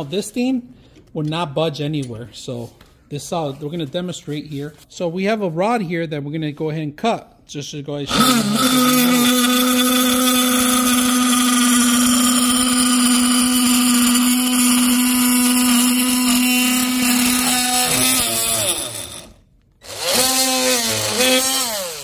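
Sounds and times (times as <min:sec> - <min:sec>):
multi-tool cutting wood: 0:08.1 - 0:22.0.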